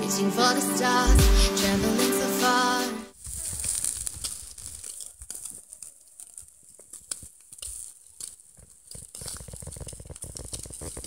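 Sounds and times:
meat sizzling over charcoal: 3.2s - 5.6s, 6.2s - 11.0s
fat crackling and popping on embers: 3.2s - 11.0s.

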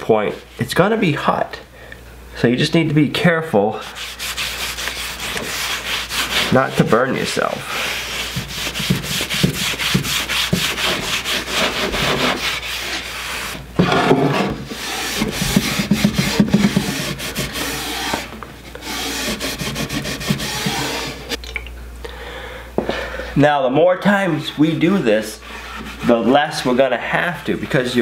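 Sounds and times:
cloth rubbing on wooden board: 3.9s - 21.4s, 25.6s - 26.4s
board knocking: 13.8s - 17.2s.

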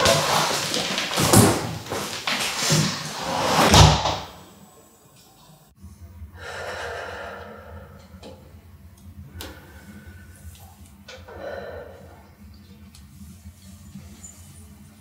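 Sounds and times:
room hum: 0.0s - 15.0s
woman breathing deeply: 6.4s - 8.3s, 9.3s - 12.4s.

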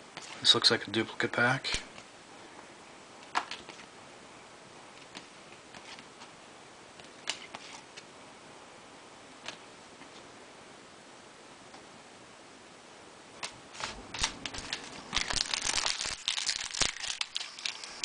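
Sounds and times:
faint steady hiss: 0.0s - 18.0s
cards clicking and snapping: 13.4s - 18.0s.

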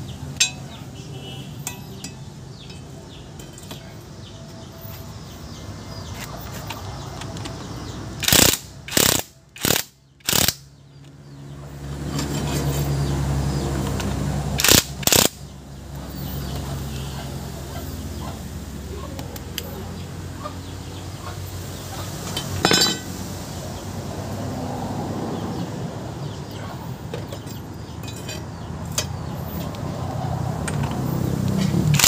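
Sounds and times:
impact wrench hammering: 8.2s - 10.6s.

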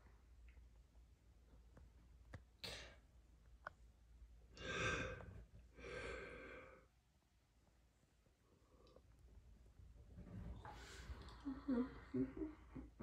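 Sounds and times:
person breathing in: 4.6s - 6.9s
person sighing: 10.8s - 13.0s.

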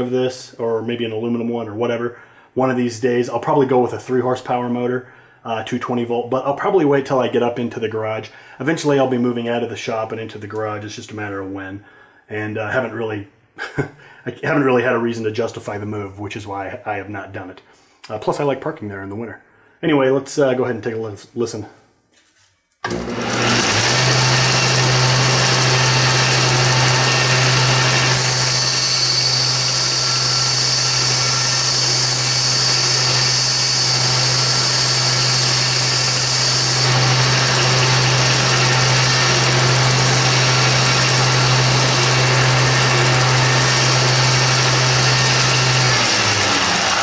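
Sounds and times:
belt grinder motor hum: 22.9s - 47.0s.

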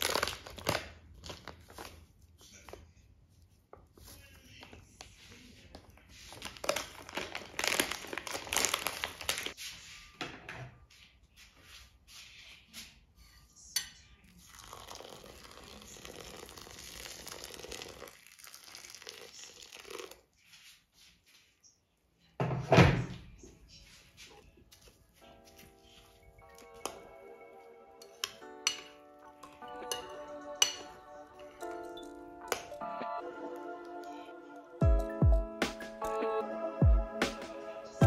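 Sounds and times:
things crinkling and clattering: 6.2s - 9.6s.

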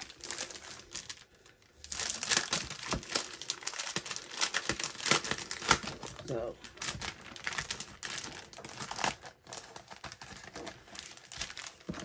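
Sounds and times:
plastic packaging crinkling: 0.0s - 12.0s.

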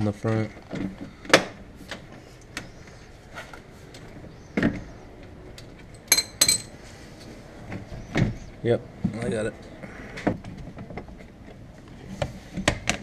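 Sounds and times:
metal hand tools clinking: 6.0s - 6.7s
ringing metallic clinks: 6.0s - 6.7s.

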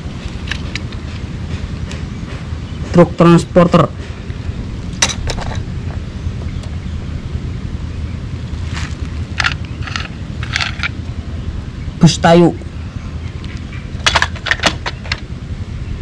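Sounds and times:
low background rumble: 0.0s - 16.0s
toy clicks and scrapes on gravel: 8.7s - 11.0s.

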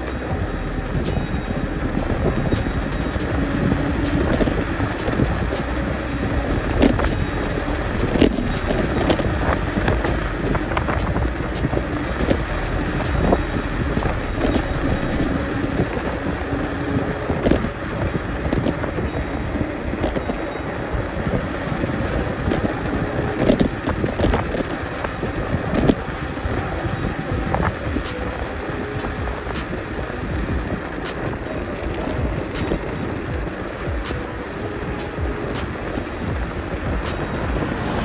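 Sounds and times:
small clicks and rattles: 0.0s - 15.3s, 27.3s - 38.0s
bicycle tyre rumble: 0.0s - 38.0s
wind on microphone: 0.0s - 38.0s.

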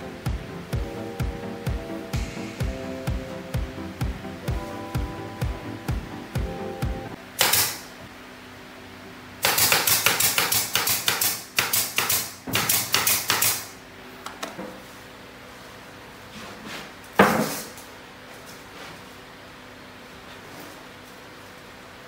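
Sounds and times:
nail gun firing into plywood: 7.4s - 7.9s, 9.4s - 13.7s.

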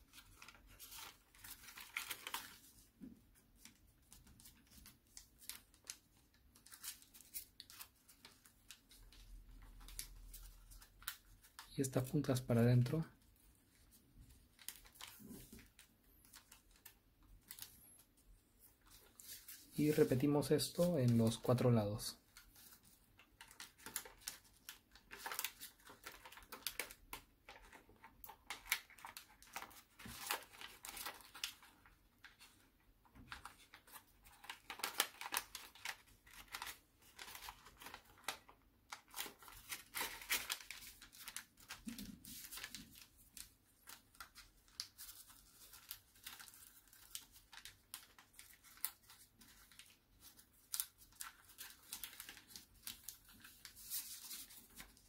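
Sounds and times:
paper crackling as creased: 0.0s - 2.8s, 3.6s - 11.7s, 13.8s - 17.8s, 22.4s - 55.0s
paper rustling and crinkling: 0.0s - 55.0s.

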